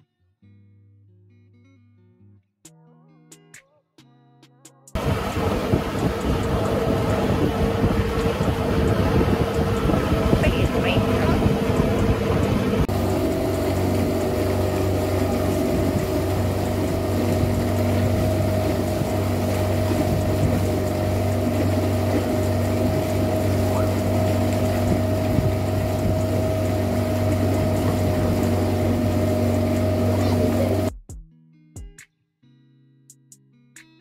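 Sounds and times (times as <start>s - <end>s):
boat engine running: 5.0s - 30.9s.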